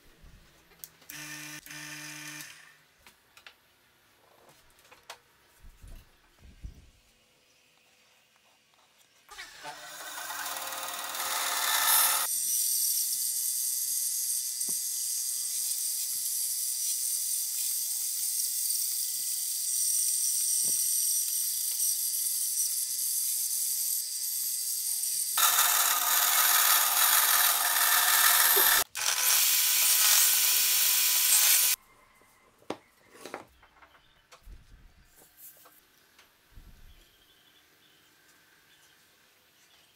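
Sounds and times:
band saw cutting wood: 9.3s - 12.3s, 24.7s - 31.8s.

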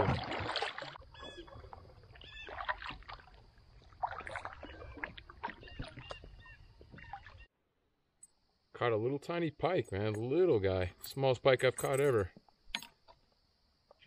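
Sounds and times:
paddle strokes in water: 0.0s - 7.5s.

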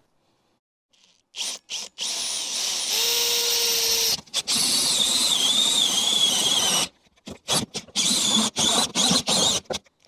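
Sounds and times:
cordless drill with hole saw: 0.9s - 9.8s.

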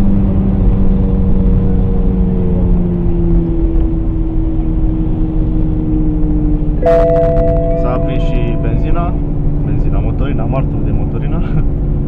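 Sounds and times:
car engine drone: 0.0s - 12.0s
road and tyre rumble: 0.0s - 12.0s.

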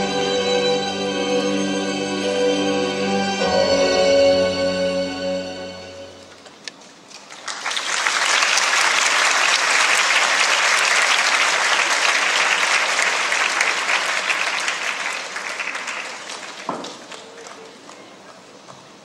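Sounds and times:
audience applauding: 7.0s - 18.9s.

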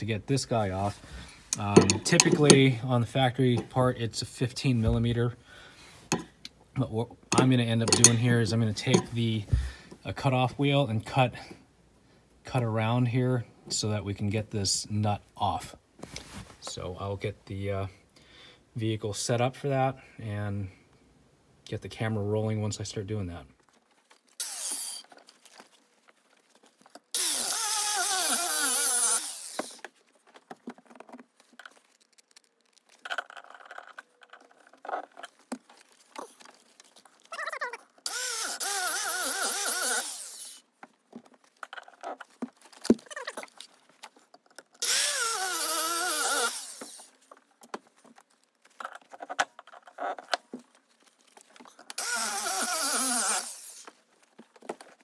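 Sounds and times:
cutoff wheel cutting metal: 1.6s - 2.7s, 7.3s - 8.2s, 8.9s - 9.1s, 27.2s - 29.8s, 38.1s - 40.6s, 44.8s - 47.1s, 52.0s - 53.9s.

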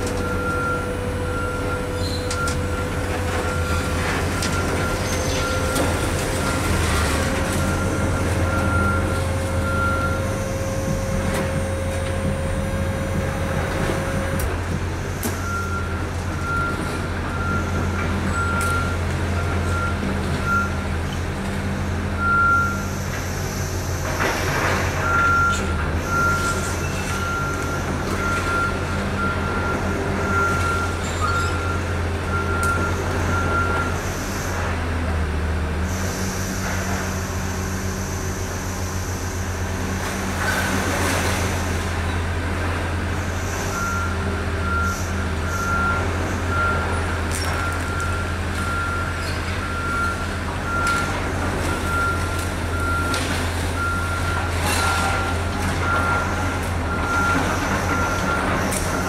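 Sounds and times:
reversing alarm beeping: 0.0s - 21.0s, 22.2s - 23.9s, 24.9s - 34.4s, 43.2s - 59.0s
truck engine running: 0.0s - 35.7s.

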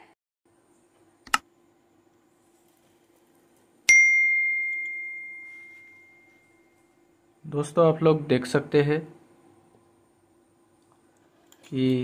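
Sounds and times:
bell-like ding: 3.9s - 6.8s.

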